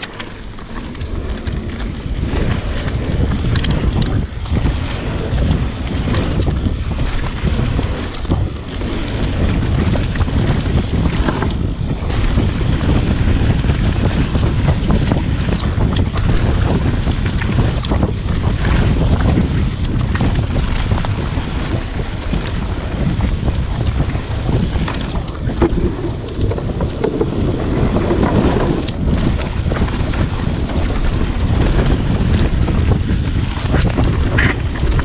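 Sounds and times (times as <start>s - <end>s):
stones and bike rattling: 0.0s - 35.0s
wind buffeting microphone: 0.0s - 35.0s
tyres rolling on gravel: 22.3s - 32.0s.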